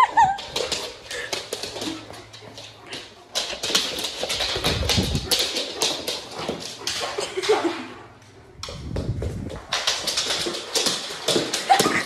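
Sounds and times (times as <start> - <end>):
dog claws clicking on wooden floor: 0.0 - 12.0.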